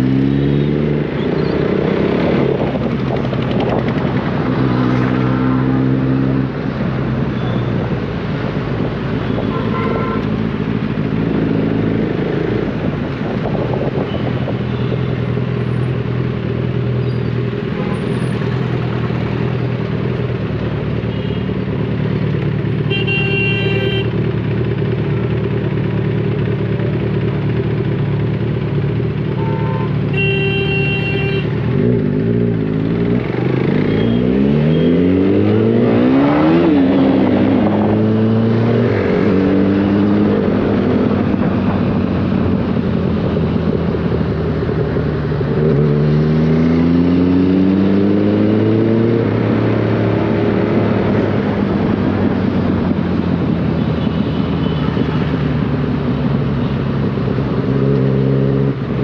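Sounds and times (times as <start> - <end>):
motorcycle engines accelerating: 0.0 - 9.3, 31.4 - 59.0
vehicle horn toots: 9.3 - 10.3, 22.9 - 24.2, 29.4 - 31.6.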